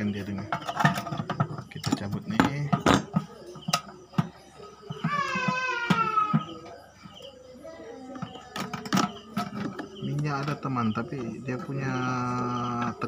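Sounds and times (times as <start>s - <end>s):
plastic clicks and knocks: 0.4s - 7.2s, 8.1s - 11.3s
child crying: 4.9s - 6.8s.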